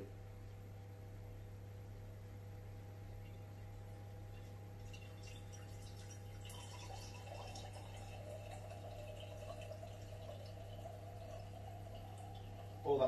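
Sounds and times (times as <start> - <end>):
liquid pouring into glass jar: 4.3 - 13.0.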